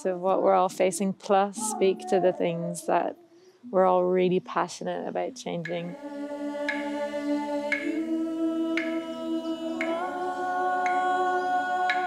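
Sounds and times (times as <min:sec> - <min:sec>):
woman singing long notes: 0:05.6 - 0:12.0
sticks clicking together: 0:07.7 - 0:07.9.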